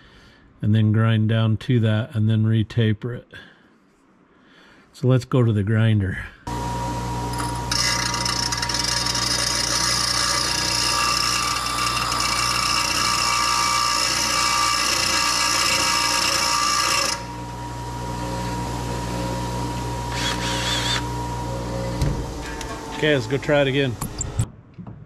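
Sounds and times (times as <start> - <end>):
bench grinder motor hum: 6.5 - 24.4
metal grinding rasp: 7.6 - 17.4.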